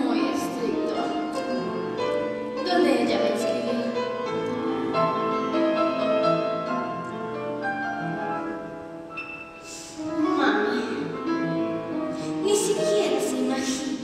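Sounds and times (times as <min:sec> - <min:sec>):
piano chords: 0:00.0 - 0:14.0.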